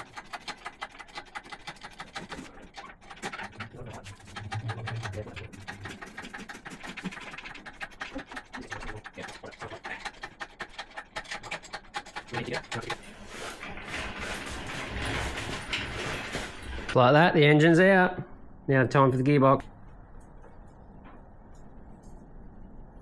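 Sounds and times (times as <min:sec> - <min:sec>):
quick clicks knocks and scrapes: 0:00.0 - 0:17.0.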